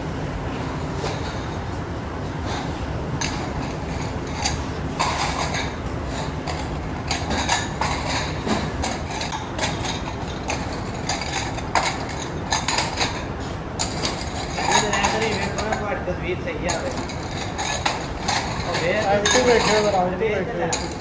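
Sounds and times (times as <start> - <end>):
ceramic bowls clinking together: 3.2 - 15.9, 16.6 - 20.0, 20.6 - 21.0.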